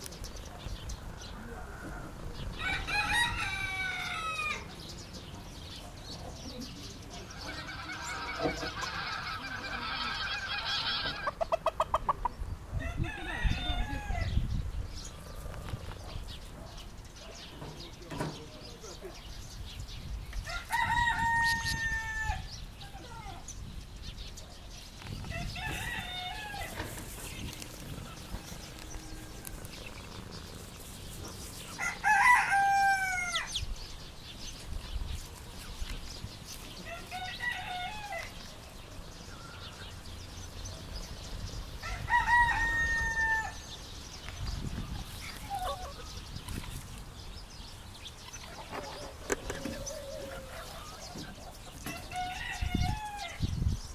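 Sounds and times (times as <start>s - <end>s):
rooster crowing: 2.6s - 4.7s, 12.8s - 14.4s, 20.5s - 22.5s, 25.3s - 26.8s, 31.8s - 33.6s, 36.8s - 38.3s, 41.8s - 43.6s.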